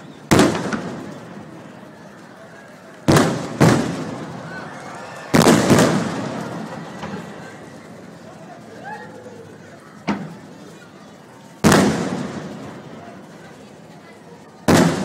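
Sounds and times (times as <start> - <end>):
firework shells booming: 0.2 - 1.4, 3.0 - 4.4, 5.3 - 7.2, 11.6 - 12.8, 14.7 - 15.0.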